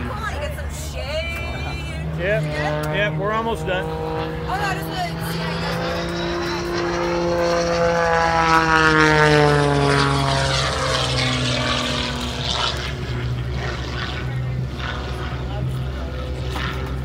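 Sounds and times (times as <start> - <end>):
propeller plane flying past: 0.0 - 17.0.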